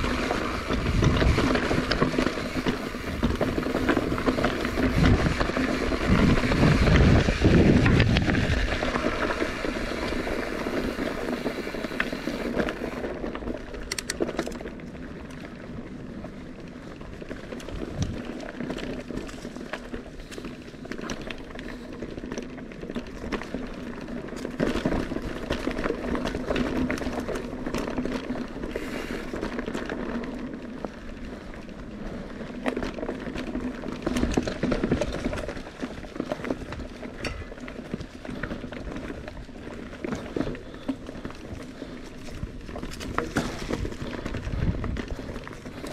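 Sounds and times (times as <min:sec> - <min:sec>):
wind buffeting microphone: 0:00.0 - 0:09.0, 0:41.5 - 0:45.9
bike tyres rolling over dirt: 0:00.0 - 0:45.9.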